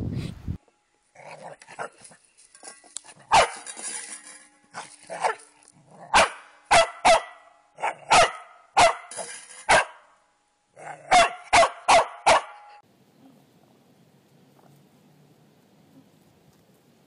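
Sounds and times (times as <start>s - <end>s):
puppy barking: 3.3s - 3.7s, 6.1s - 9.1s, 9.7s - 10.0s, 10.8s - 12.7s.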